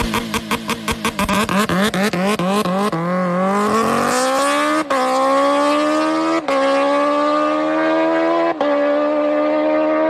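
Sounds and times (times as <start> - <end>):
motorcycle engine accelerating: 0.0 - 10.0.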